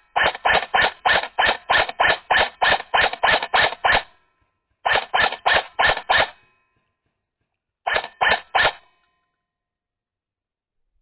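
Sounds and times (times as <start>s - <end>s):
airsoft gun shots: 0.0s - 4.1s, 4.8s - 6.4s, 7.9s - 8.9s.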